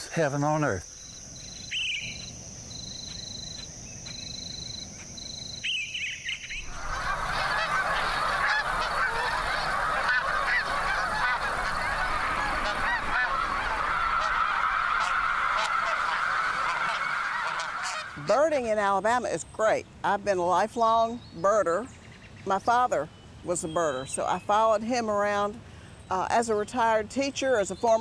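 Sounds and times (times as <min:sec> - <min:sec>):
high insect trill: 0:00.0 - 0:16.6
flock of geese honking: 0:06.6 - 0:19.0.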